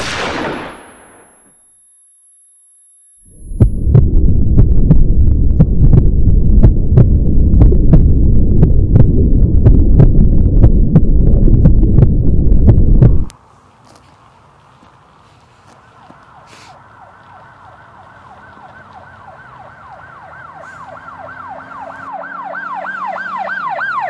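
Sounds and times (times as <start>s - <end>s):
high ringing tone: 0.3s - 4.0s
low throbbing rumble: 3.2s - 13.3s.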